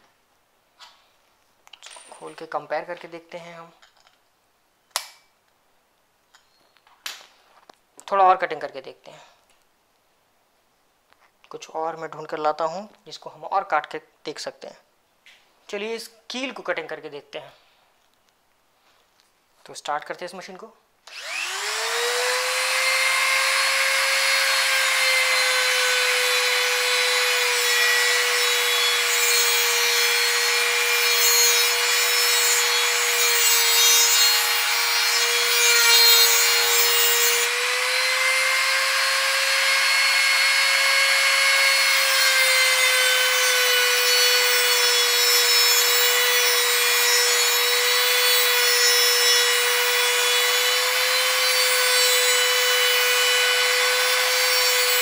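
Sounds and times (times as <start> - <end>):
die grinder cutting steel: 21.1 - 55.0.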